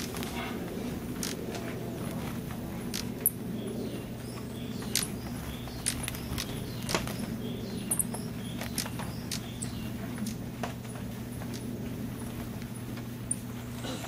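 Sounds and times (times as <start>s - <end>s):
rain hissing on foliage: 0.0s - 3.2s.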